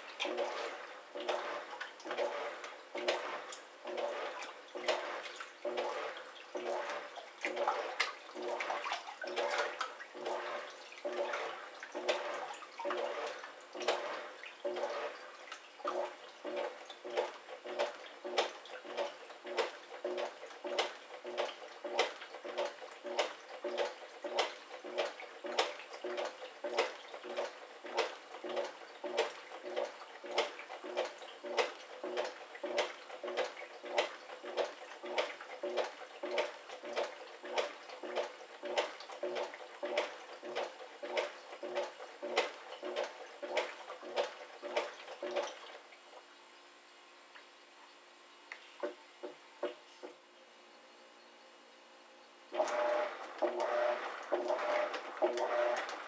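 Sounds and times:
water sloshing in tub: 0:00.0 - 0:46.4, 0:52.5 - 0:56.0
washing machine motor rhythm: 0:00.0 - 0:56.0.

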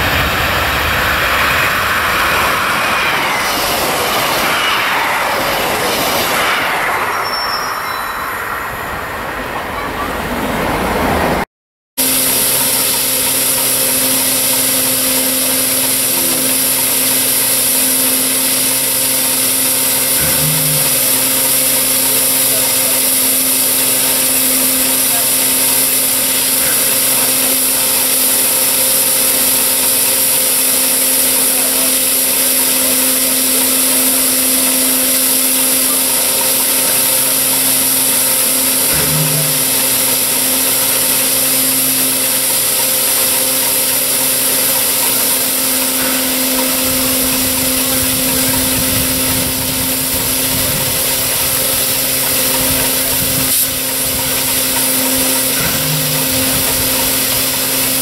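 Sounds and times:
loud hiss of steam: 0:00.0 - 0:09.1, 0:12.0 - 0:58.0
low rumble: 0:00.0 - 0:09.3
steady hum: 0:00.0 - 0:09.3, 0:12.0 - 0:58.0.

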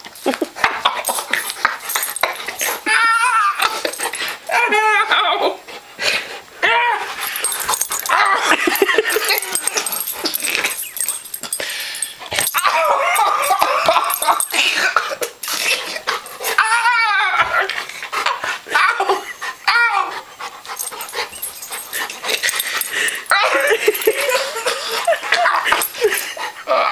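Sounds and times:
dog whining and yipping: 0:01.8 - 0:05.3, 0:06.6 - 0:11.6, 0:12.3 - 0:14.8, 0:15.7 - 0:17.8, 0:18.7 - 0:26.4.

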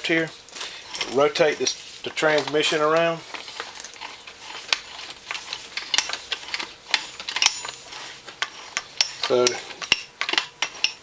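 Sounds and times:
gearshift mechanism clicking: 0:02.2 - 0:11.0.

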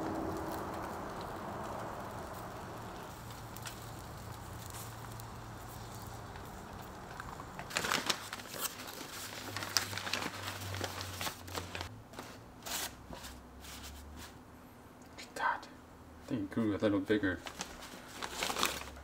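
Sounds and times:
low hum: 0:00.0 - 0:07.7
paper crinkling and rustling: 0:03.1 - 0:14.4, 0:17.4 - 0:19.0.

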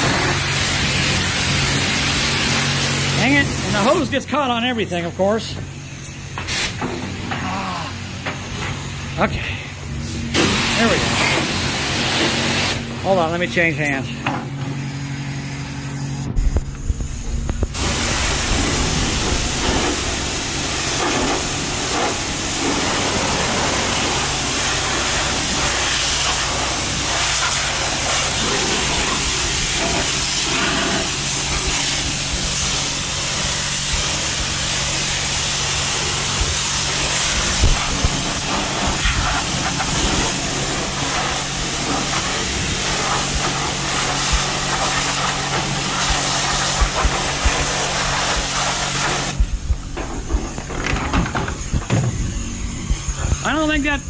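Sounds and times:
pressure washer spraying hiss: 0:00.0 - 0:54.0
low hum: 0:14.0 - 0:23.6, 0:49.0 - 0:54.0.

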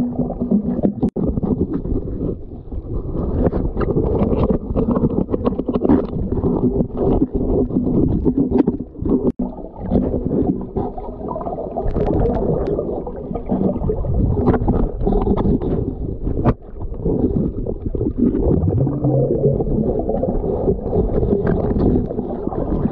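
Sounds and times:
muffled underwater rumbling: 0:00.0 - 0:22.9.

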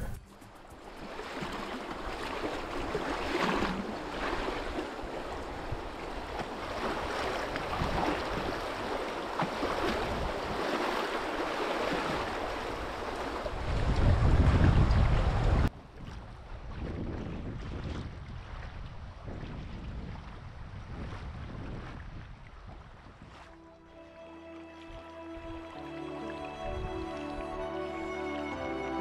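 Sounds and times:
river water rushing: 0:00.3 - 0:14.0, 0:23.5 - 0:29.0
wind buffeting the microphone: 0:02.6 - 0:09.0, 0:09.6 - 0:10.8, 0:11.9 - 0:23.5.

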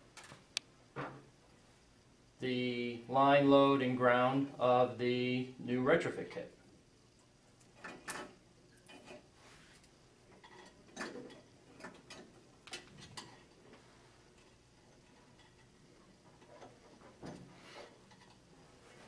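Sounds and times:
wires clicking and rustling: 0:07.1 - 0:18.7.

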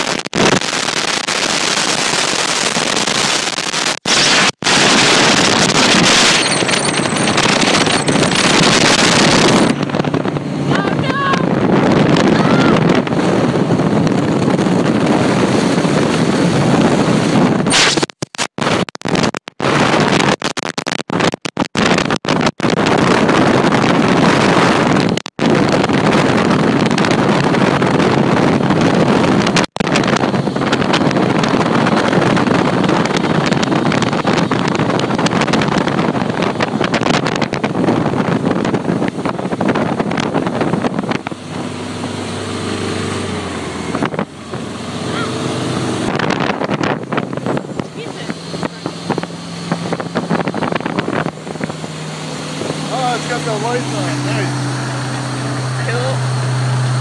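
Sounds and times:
water rushing: 0:00.0 - 0:13.3, 0:40.4 - 0:57.0
wind buffeting microphone: 0:00.0 - 0:17.8, 0:18.6 - 0:57.0
boat engine hum: 0:00.0 - 0:57.0.

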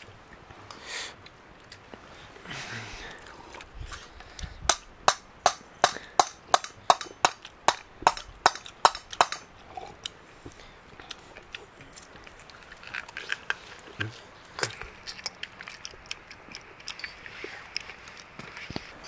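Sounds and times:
sharp knocks: 0:04.7 - 0:09.5.

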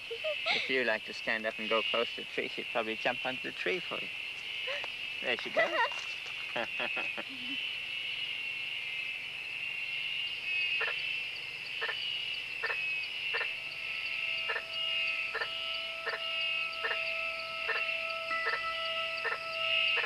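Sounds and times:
frog calling: 0:00.0 - 0:09.2, 0:09.8 - 0:20.0
insects trilling: 0:00.0 - 0:20.0
steady low tone: 0:13.0 - 0:20.0.

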